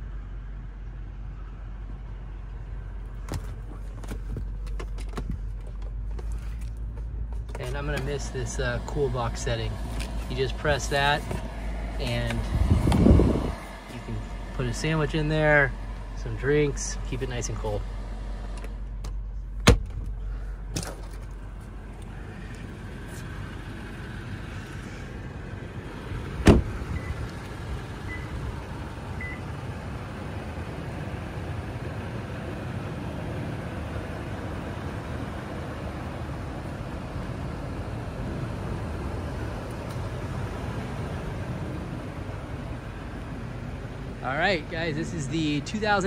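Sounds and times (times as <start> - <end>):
car engine running: 0.0 - 46.0
car door closing thud: 19.6 - 20.2, 26.4 - 26.8.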